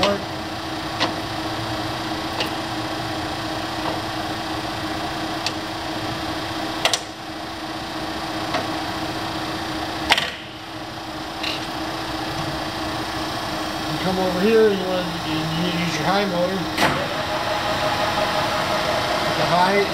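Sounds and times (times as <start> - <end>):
lathe humming: 14.1 - 19.9.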